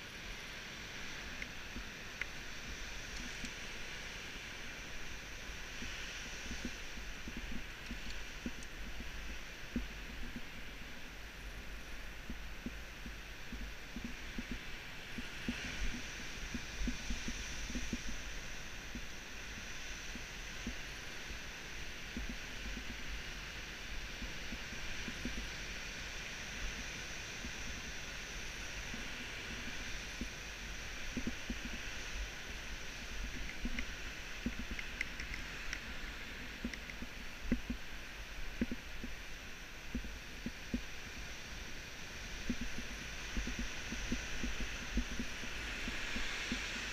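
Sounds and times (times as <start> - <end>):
faint clicks: 3.0 - 3.6, 5.7 - 10.5, 31.0 - 32.1, 33.0 - 37.9, 38.5 - 39.2, 42.4 - 46.9.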